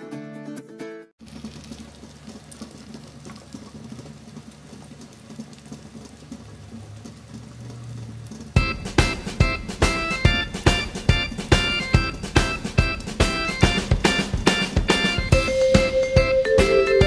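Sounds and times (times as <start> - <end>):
guitar music: 0.0 - 1.1, 8.6 - 17.0
omelette sizzling in oil: 1.2 - 15.7.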